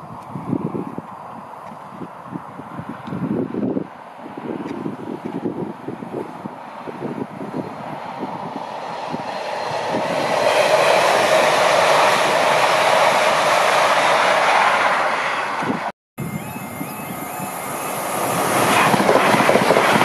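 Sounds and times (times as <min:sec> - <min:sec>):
train passing: 0:00.0 - 0:20.0
wind buffeting microphone: 0:00.0 - 0:20.0.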